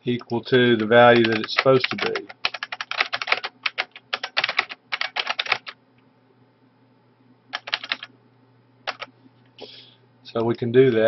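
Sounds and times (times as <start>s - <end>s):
faint low hum: 0.0s - 11.0s
typing on computer keyboard: 0.2s - 5.8s, 7.5s - 8.1s, 8.9s - 9.1s.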